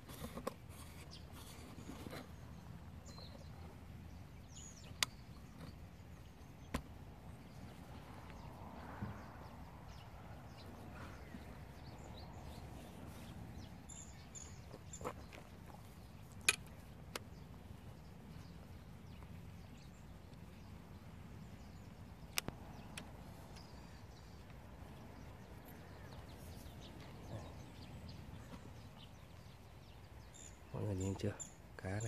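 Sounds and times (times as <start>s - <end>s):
sharp single clicks: 22.3s - 23.7s.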